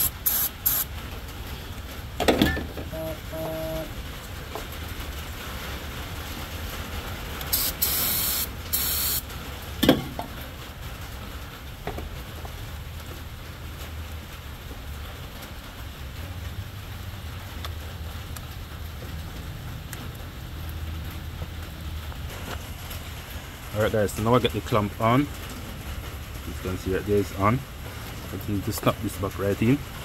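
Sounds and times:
aerosol spray bursts: 0.0 - 0.9, 7.5 - 9.2
low steady hum: 0.0 - 11.5.

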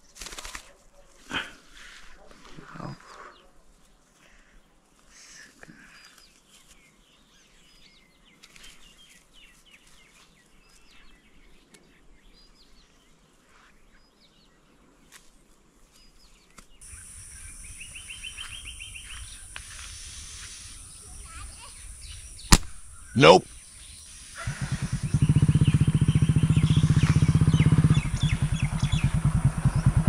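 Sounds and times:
small birds chirping: 2.1 - 30.0
bird trilling: 16.8 - 30.0.

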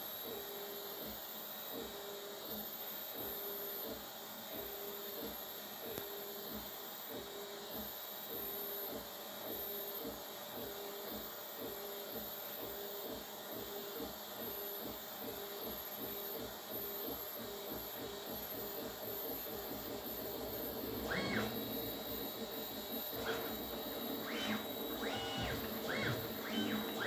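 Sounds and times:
steady hum: 19.4 - 27.0
stepper motors whining: 20.7 - 27.0.

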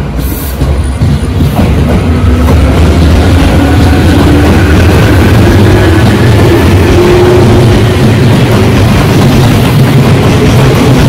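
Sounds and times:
train wheels rumbling on rails: 0.0 - 11.0
train motor whine: 2.0 - 9.1.

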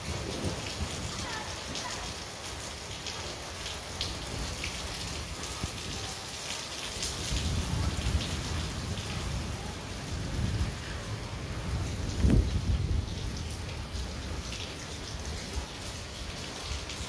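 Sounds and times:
heavy rain on foliage and pavement: 0.0 - 17.0.

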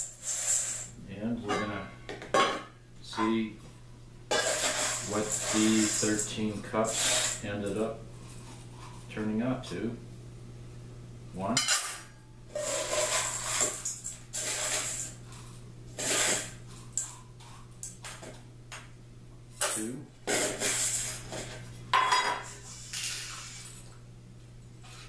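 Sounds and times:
metal cup scraping a bowl: 0.0 - 0.9, 4.3 - 7.4, 12.5 - 15.2, 16.0 - 16.6, 20.2 - 21.6.

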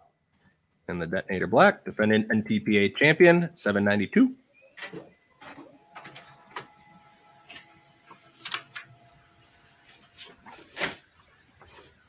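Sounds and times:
printer whirring: 4.6 - 11.7.

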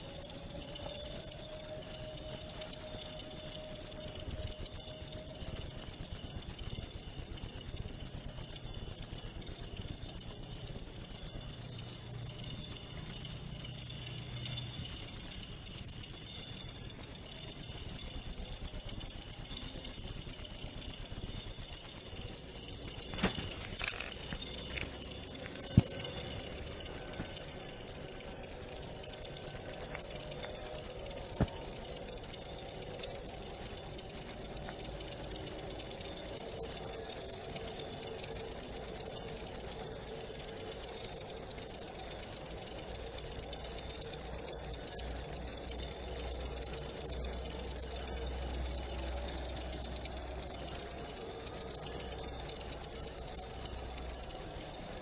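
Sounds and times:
cricket chirping: 0.0 - 55.0.

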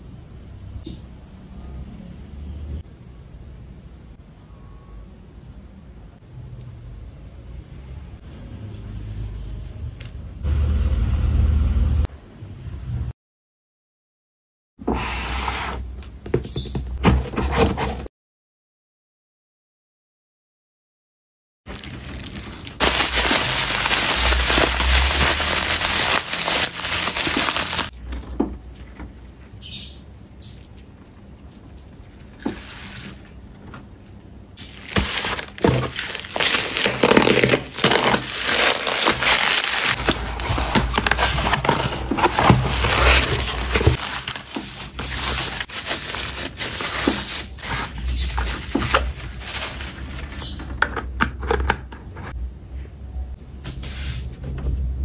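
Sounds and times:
bubble wrap crinkling: 21.7 - 28.0, 34.6 - 50.7.

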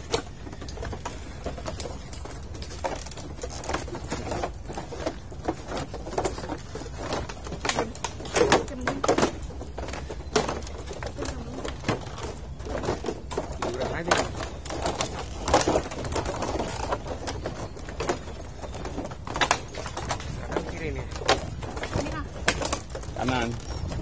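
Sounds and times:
footsteps on wooden boards: 0.0 - 24.0.

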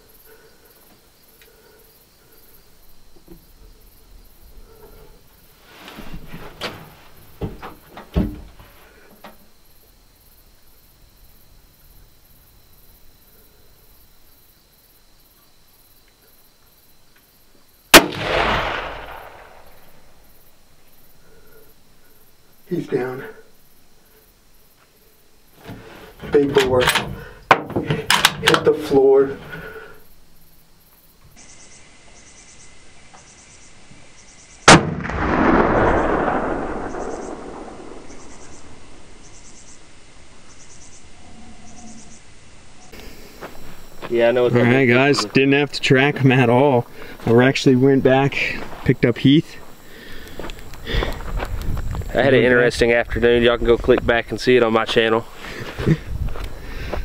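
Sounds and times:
rifle shot with echo: 17.9 - 20.2, 34.7 - 39.0.

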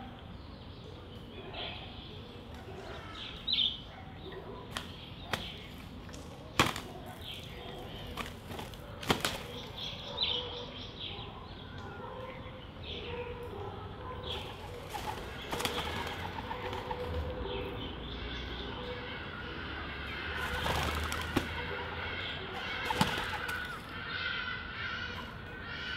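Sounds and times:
wings flapping: 4.7 - 9.8, 14.3 - 17.3, 20.3 - 22.0, 22.6 - 23.9.

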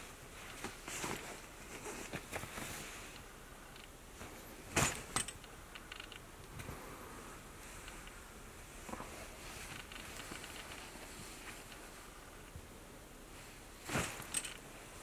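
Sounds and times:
fabric rustling: 0.0 - 3.2, 8.7 - 12.4, 13.3 - 15.0
small clicks: 5.2 - 6.6.

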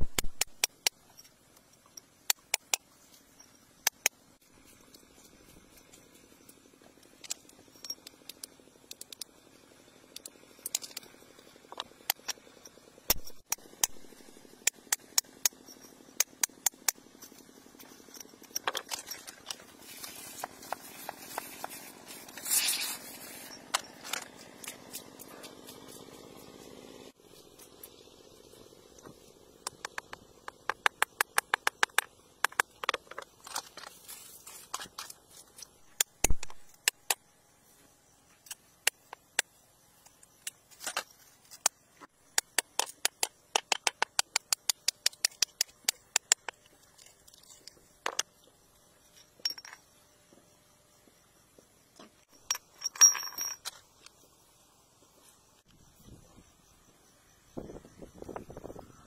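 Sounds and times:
chisel scraping rock: 15.4 - 25.8.

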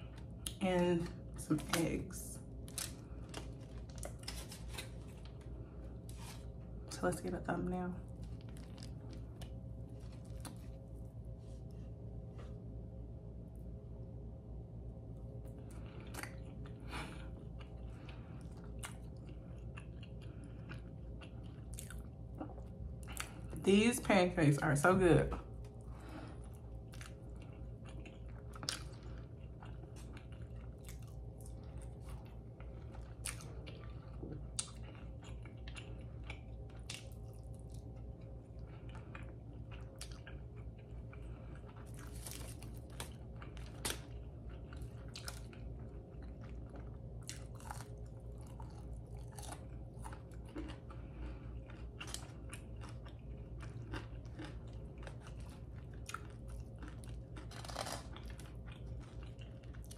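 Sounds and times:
steady low hum: 0.0 - 59.9
person chewing food: 2.5 - 6.9, 8.0 - 12.8, 15.2 - 23.6, 25.4 - 59.9
crisp crunches and clicks: 2.6 - 6.6, 8.1 - 10.9, 39.8 - 59.9.

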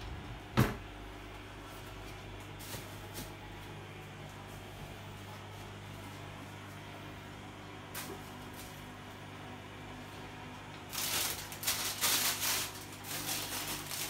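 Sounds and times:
steady low hum: 0.0 - 14.0
plastic bag rustling: 10.9 - 14.0.

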